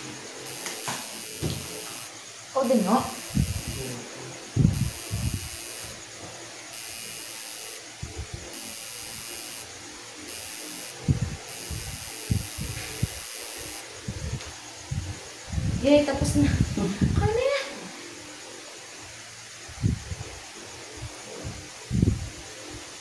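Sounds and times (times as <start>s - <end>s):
tattoo machine buzzing: 0.0s - 14.1s.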